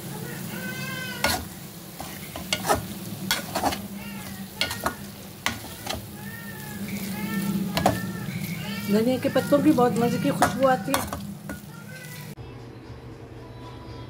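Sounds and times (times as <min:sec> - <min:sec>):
light sizzle in a pot: 0:00.0 - 0:12.4
metal spatula scraping a pot: 0:01.1 - 0:11.7.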